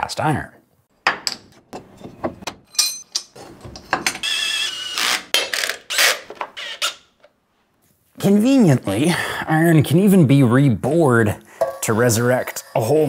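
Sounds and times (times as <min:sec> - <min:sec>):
metal scraping and sliding: 0:11.6 - 0:13.0.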